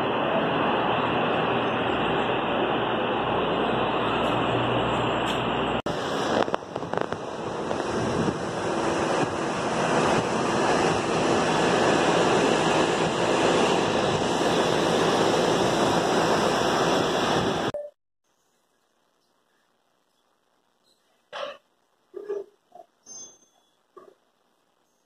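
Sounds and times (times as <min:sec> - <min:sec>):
wind buffeting microphone: 0:05.9 - 0:17.7.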